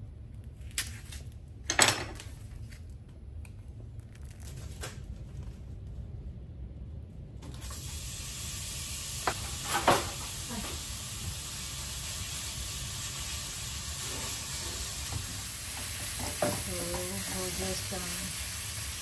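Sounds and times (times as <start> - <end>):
meat sizzling in a frying pan: 7.7 - 19.0.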